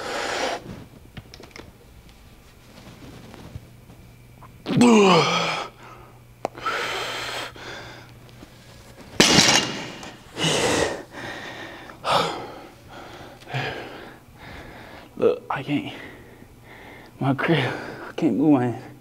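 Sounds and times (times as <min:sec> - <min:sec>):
man breathing hard: 0:00.0 - 0:00.6, 0:05.1 - 0:08.1, 0:10.0 - 0:15.2, 0:15.8 - 0:18.2.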